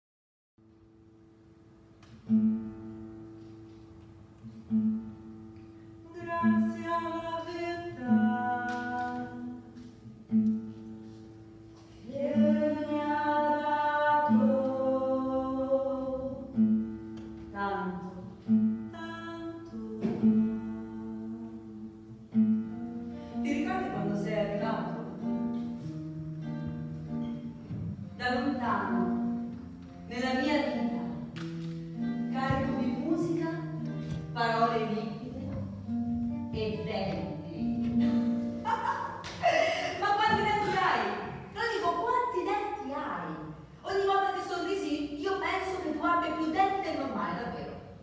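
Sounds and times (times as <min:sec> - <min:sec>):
classical guitar plucking: 0:00.9 - 0:48.0
woman singing: 0:06.1 - 0:09.9, 0:12.0 - 0:16.5, 0:18.9 - 0:22.1, 0:23.4 - 0:25.1.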